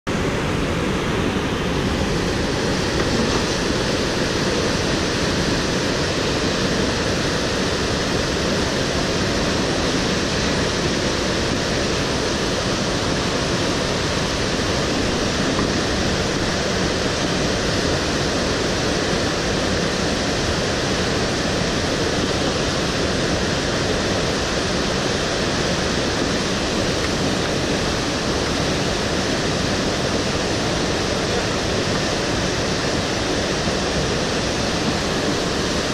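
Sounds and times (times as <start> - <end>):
river rapids roaring: 0.1 - 35.9.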